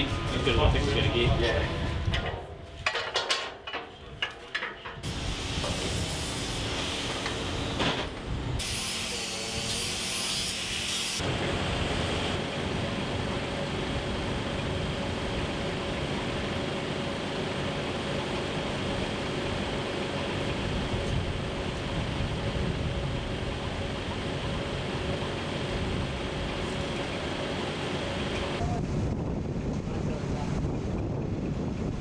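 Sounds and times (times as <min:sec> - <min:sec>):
harsh hissing: 0:08.6 - 0:11.2.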